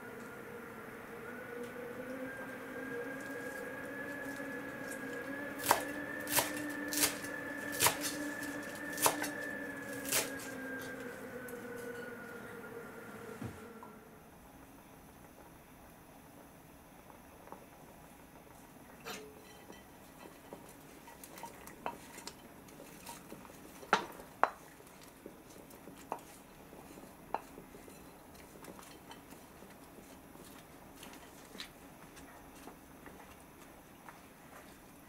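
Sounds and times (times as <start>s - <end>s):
porridge stirred with wooden spatula: 19.3s - 35.0s.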